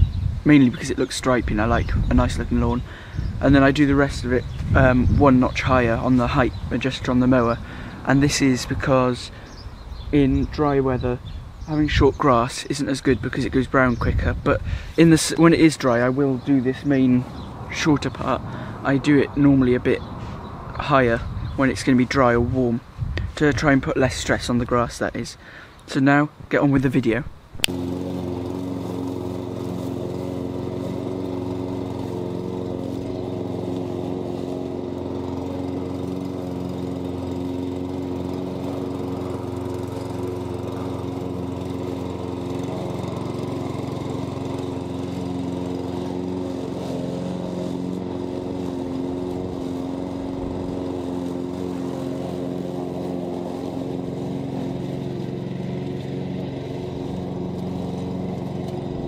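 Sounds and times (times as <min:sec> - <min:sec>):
lawn mower running: 0:00.0 - 0:26.0, 0:26.8 - 0:59.0.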